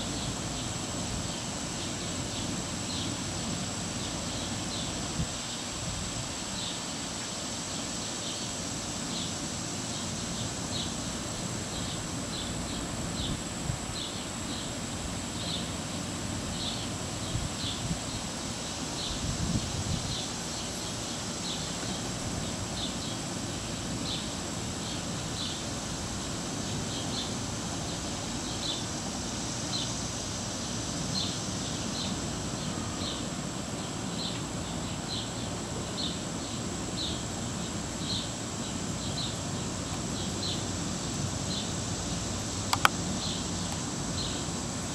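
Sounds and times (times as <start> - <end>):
low wind-like rumble: 19.0 - 20.6.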